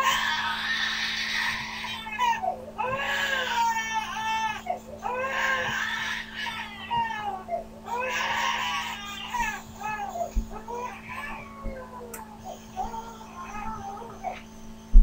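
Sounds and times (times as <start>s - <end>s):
baby crying: 0.0s - 14.6s.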